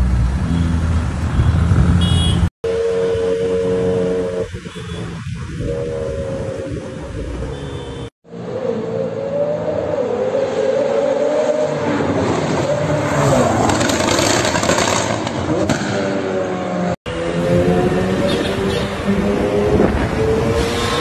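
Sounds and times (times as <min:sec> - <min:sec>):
car engine revving: 0:08.4 - 0:21.0.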